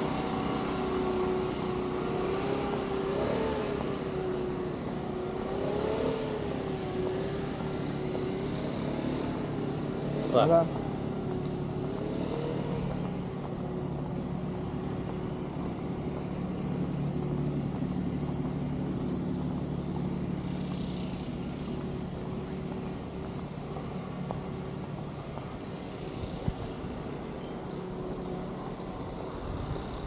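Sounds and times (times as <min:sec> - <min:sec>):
motor hum: 0:06.2 - 0:30.0.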